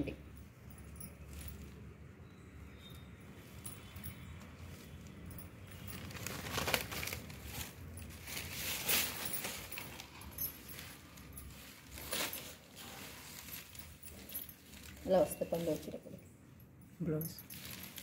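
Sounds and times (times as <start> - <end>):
fabric rustling and crinkling: 0.6 - 2.1, 2.8 - 16.2, 17.2 - 18.0.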